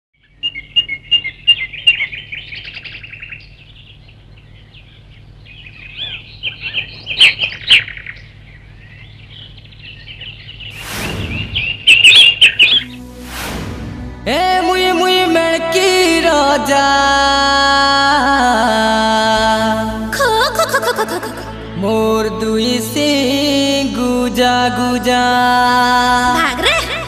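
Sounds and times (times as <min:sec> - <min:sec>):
birds chirping and twittering: 0:00.2 - 0:13.2
rushing noise: 0:10.7 - 0:15.5.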